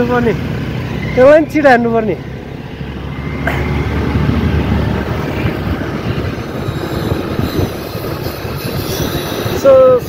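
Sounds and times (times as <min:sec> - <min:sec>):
scooter road noise rumble: 0:00.0 - 0:10.0
wind noise on microphone: 0:03.8 - 0:10.0.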